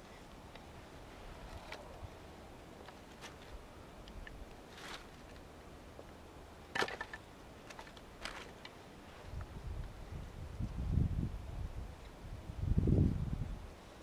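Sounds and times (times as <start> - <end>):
rustling of shavings and leaves: 0.0 - 6.1, 6.7 - 10.0
wooden sticks clicking and knocking: 6.7 - 8.8.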